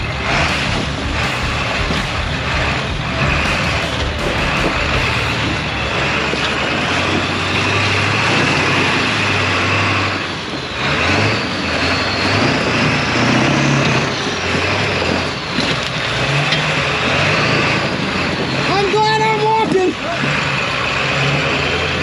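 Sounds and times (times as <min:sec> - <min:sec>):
steady high whine: 0:00.0 - 0:10.8
truck engine revving: 0:00.0 - 0:22.0.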